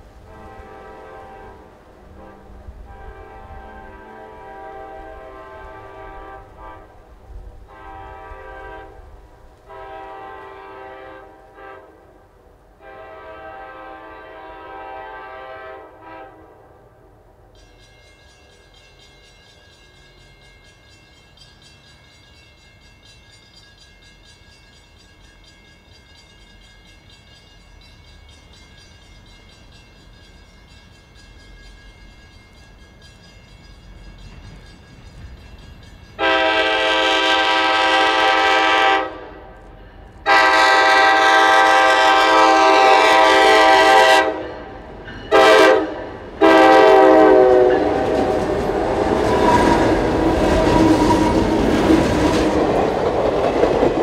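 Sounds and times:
high-pitched train sound: 0:00.0 - 0:54.0
train rumble: 0:00.0 - 0:54.0
locomotive air horn blasts: 0:00.2 - 0:07.1, 0:07.7 - 0:12.2, 0:12.8 - 0:16.7, 0:36.2 - 0:39.6, 0:40.2 - 0:48.4.

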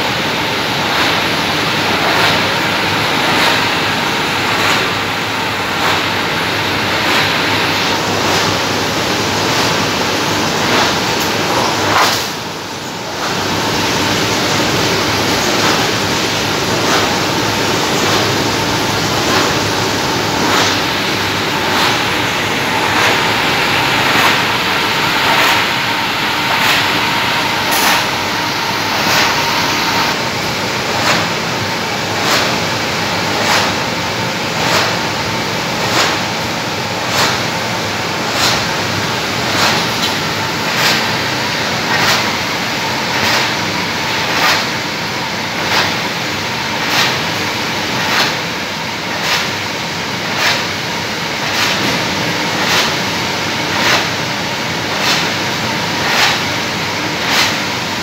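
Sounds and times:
steady mechanical hum: 0:00.0 - 0:58.0
sharp clack of stacking sheets: 0:02.0 - 0:02.6, 0:03.2 - 0:05.1, 0:10.6 - 0:12.4, 0:20.4 - 0:20.9, 0:30.9 - 0:31.4, 0:32.2 - 0:32.7, 0:33.4 - 0:33.9, 0:34.6 - 0:35.1, 0:35.8 - 0:36.4, 0:37.1 - 0:37.6, 0:38.3 - 0:38.8, 0:39.5 - 0:41.2, 0:41.9 - 0:42.4, 0:44.2 - 0:44.8, 0:45.6 - 0:46.0, 0:46.8 - 0:48.5, 0:49.1 - 0:49.6, 0:50.3 - 0:50.7, 0:51.4 - 0:53.1, 0:53.7 - 0:54.3, 0:54.9 - 0:56.6, 0:57.2 - 0:57.7.

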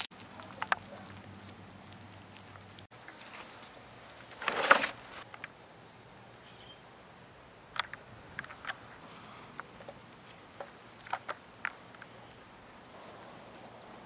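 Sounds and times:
crisp batter crackling: 0:00.0 - 0:02.9.

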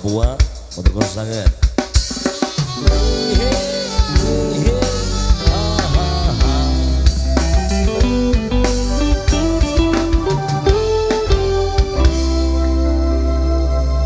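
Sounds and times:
band music: 0:01.2 - 0:14.0
drum hits: 0:01.8 - 0:12.4
sliding melody: 0:02.5 - 0:14.0
keyboard chords: 0:02.6 - 0:14.0
bass line: 0:02.7 - 0:14.0.

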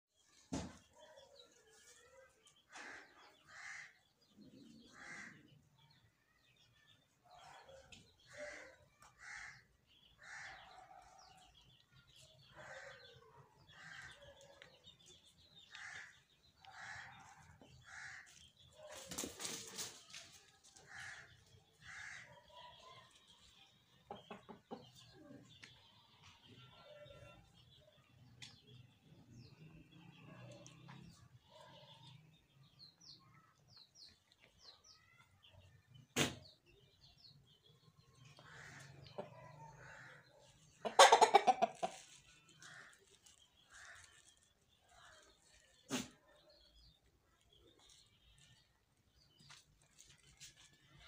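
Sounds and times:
chicken clucking: 0:24.0 - 0:25.7, 0:40.5 - 0:42.6.

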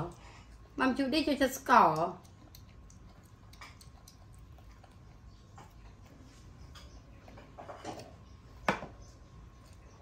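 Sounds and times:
monkey eating with mouth smacks: 0:01.7 - 0:07.4.

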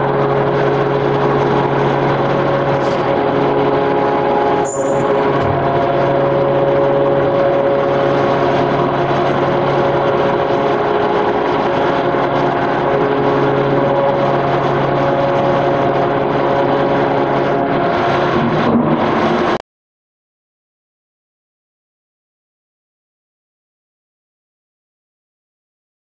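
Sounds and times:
industrial machinery drone: 0:00.0 - 0:19.6.

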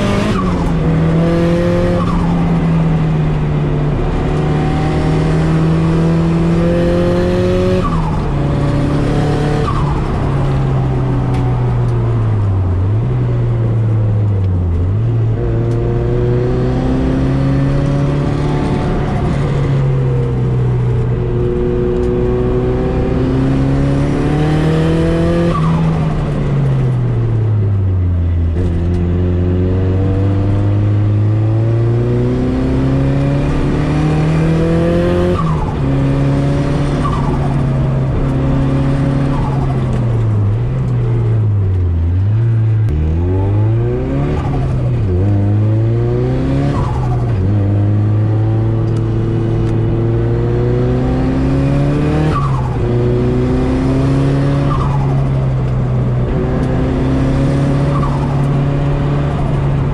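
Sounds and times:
car engine revving under load: 0:28.2 - 0:59.9.

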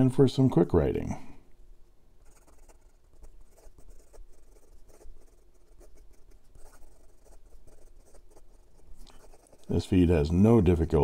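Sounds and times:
pen nib scratching on paper: 0:02.2 - 0:10.4.

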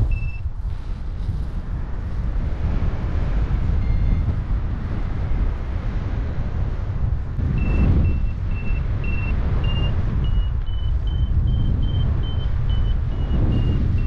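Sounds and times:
variometer beeping: 0:00.0 - 0:00.4, 0:03.8 - 0:04.3, 0:07.4 - 0:14.0
wind rushing over microphone: 0:00.0 - 0:14.0.

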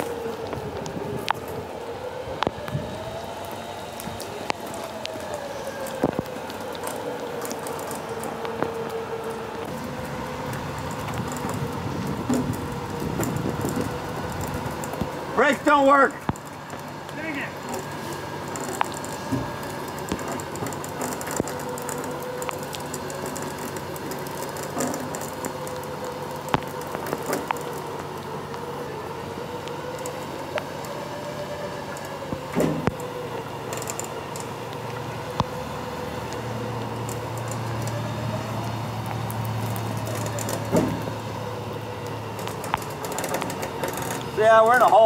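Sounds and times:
winch motor whining: 0:00.0 - 0:45.0
sharp clicks and knocks: 0:04.0 - 0:15.2, 0:16.2 - 0:28.6, 0:42.0 - 0:45.0.

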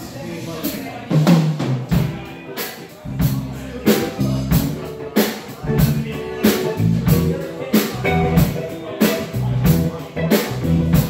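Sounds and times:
drum kit beat: 0:00.0 - 0:11.0
electric guitar: 0:01.9 - 0:11.0
sustained bass notes: 0:03.0 - 0:11.0.

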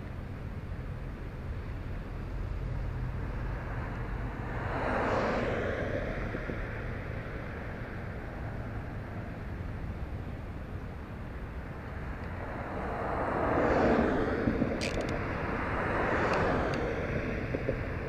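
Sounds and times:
steady low rumble: 0:00.0 - 0:18.0
vehicle passing by: 0:02.6 - 0:09.9, 0:11.6 - 0:18.0.

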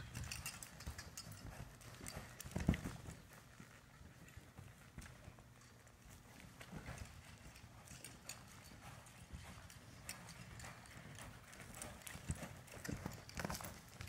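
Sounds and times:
horse hoofbeats on soft dirt: 0:00.0 - 0:14.0.

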